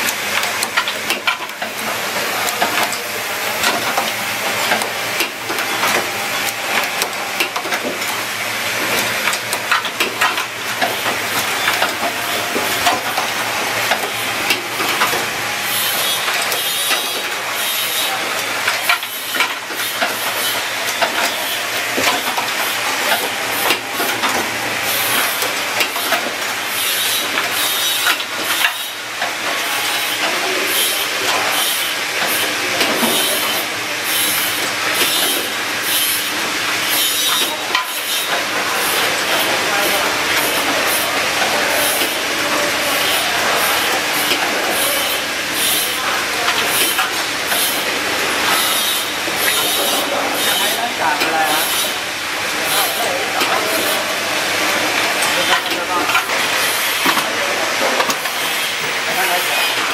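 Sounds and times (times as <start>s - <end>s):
machine clattering clicks and knocks: 0.0s - 15.3s, 18.2s - 30.4s.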